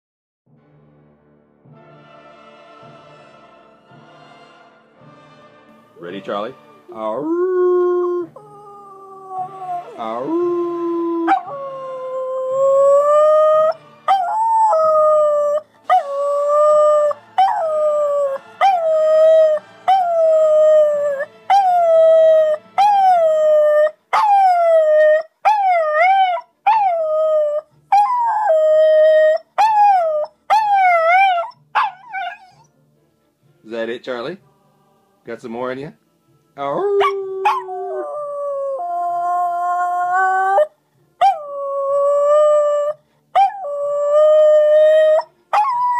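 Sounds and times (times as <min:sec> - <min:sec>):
small dog howling: 0:07.1 - 0:32.7, 0:36.8 - 0:45.9.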